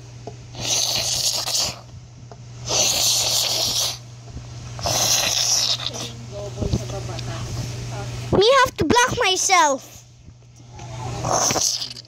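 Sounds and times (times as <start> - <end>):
steady low hum: 0.0 - 12.0
mouth hissing bursts: 0.5 - 1.9, 2.6 - 4.0, 4.8 - 6.2, 11.0 - 12.0.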